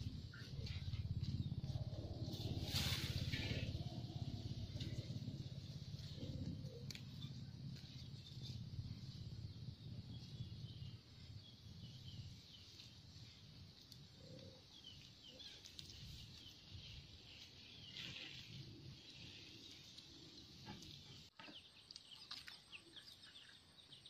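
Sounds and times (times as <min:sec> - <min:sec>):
low rumble: 0:00.0 - 0:12.4.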